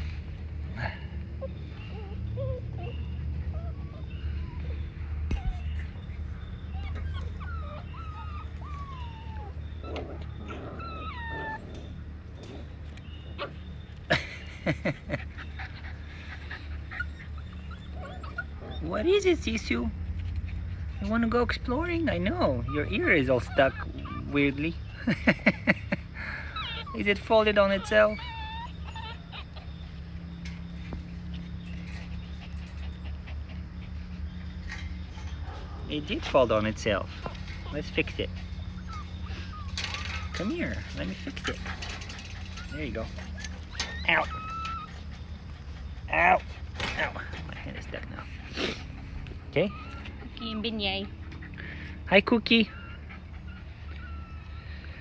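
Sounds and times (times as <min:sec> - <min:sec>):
puppies whimpering: 0:00.0 - 0:55.0
dog panting: 0:37.0 - 0:55.0.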